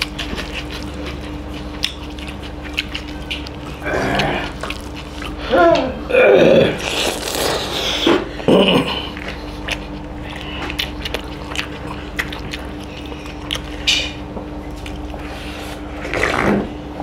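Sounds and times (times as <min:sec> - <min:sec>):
lip smacks and mouth clicks: 0:00.0 - 0:05.4, 0:09.1 - 0:15.3
wet chewing: 0:00.0 - 0:16.5
faint steady hum: 0:00.0 - 0:17.0.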